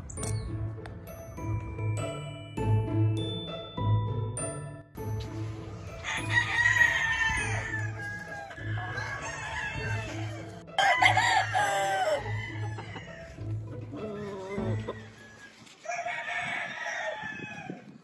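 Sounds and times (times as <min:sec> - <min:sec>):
music with steady beat: 0:00.0 - 0:08.0
rooster crowing: 0:06.0 - 0:13.4, 0:14.0 - 0:17.9.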